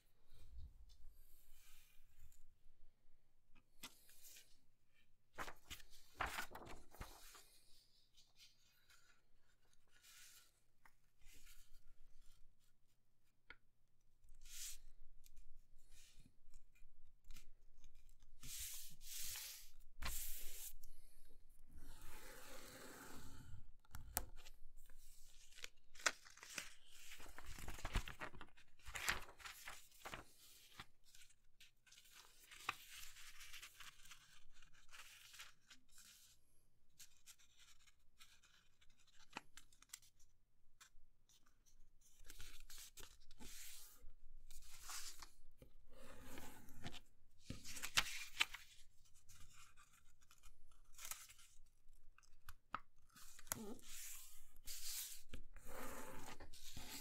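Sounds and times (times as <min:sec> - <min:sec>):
paper being folded and creased: 0:05.3 - 0:12.4, 0:23.9 - 0:45.4, 0:46.2 - 0:57.0.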